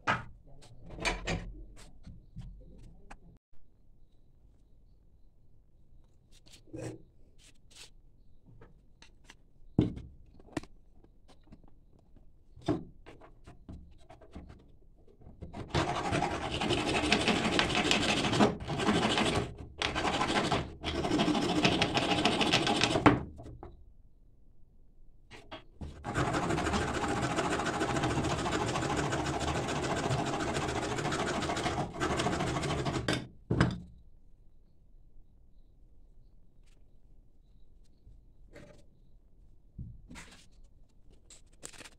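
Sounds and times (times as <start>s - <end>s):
file rasping on wood: 15.6s - 23.0s, 26.0s - 33.1s.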